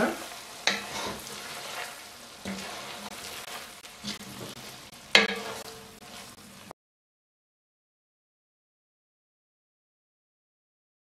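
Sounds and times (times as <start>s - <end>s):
spatula scraping pot: 0.0s - 6.7s
mince sizzling: 0.0s - 6.8s.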